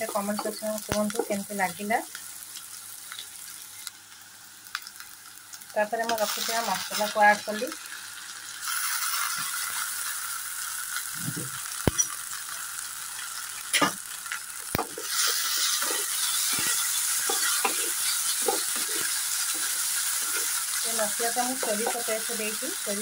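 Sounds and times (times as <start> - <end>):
onions sizzling in hot oil: 0.0 - 23.0
spatula stirring: 14.8 - 22.8.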